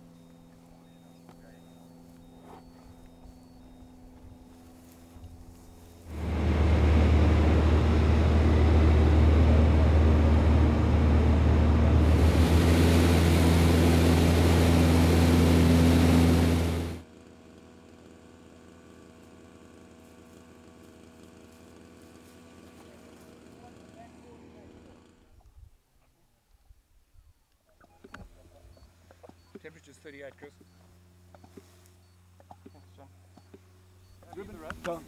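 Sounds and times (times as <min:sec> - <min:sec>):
vehicle engine running loud: 0:05.4 - 0:25.1.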